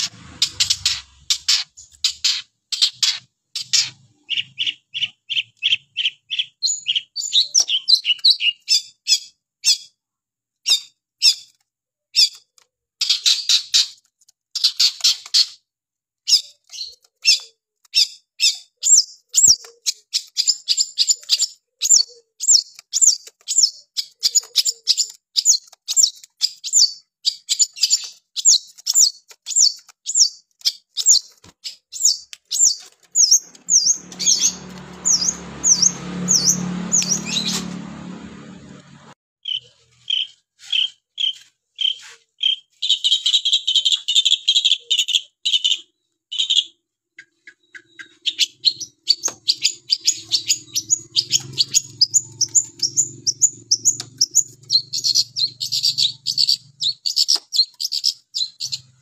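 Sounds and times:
bird chirping: 0.0 - 10.0, 10.6 - 14.0, 16.3 - 59.0.

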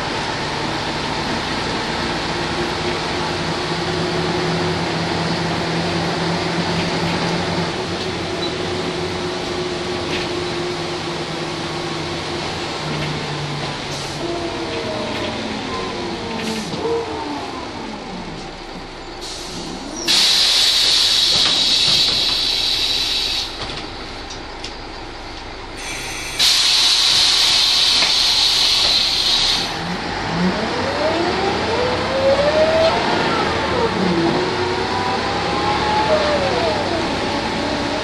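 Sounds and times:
bus diesel engine pulling away: 0.0 - 38.0
compressed air hisses: 19.2 - 23.6, 25.8 - 29.8.

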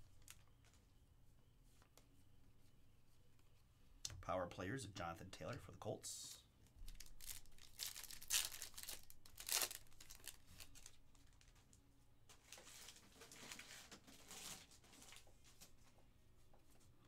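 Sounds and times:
foil pack crinkling: 0.0 - 0.8, 6.8 - 15.8
foil pack ripping: 6.8 - 11.5, 12.4 - 15.3
cards rustling: 6.8 - 11.6.

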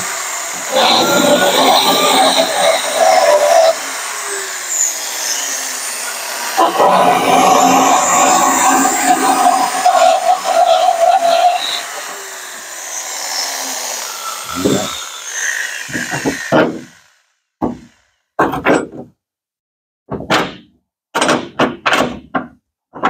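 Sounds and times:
electric drill whining: 0.0 - 18.1.

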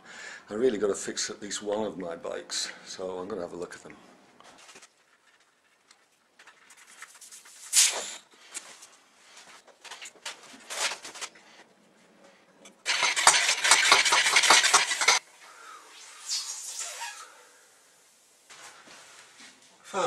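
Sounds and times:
bicycle wheel clicking rattle: 12.9 - 15.2.

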